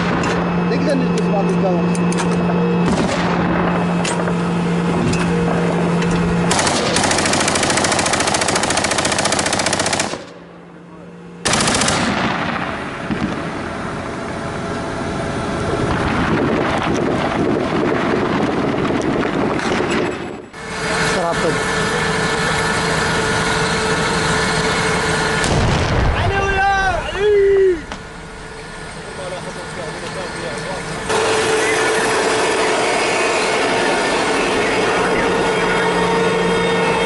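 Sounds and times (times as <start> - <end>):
steady low hum: 0.0 - 37.0
machine-gun fire: 2.8 - 3.8, 6.5 - 10.4, 11.4 - 13.6.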